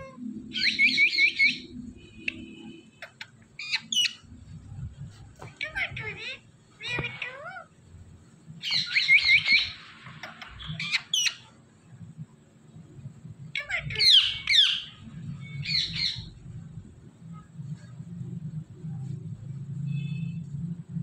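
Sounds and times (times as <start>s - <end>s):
parrot chirps and squawks: 0.0s - 4.3s, 5.6s - 7.8s, 8.6s - 11.6s, 13.5s - 16.4s.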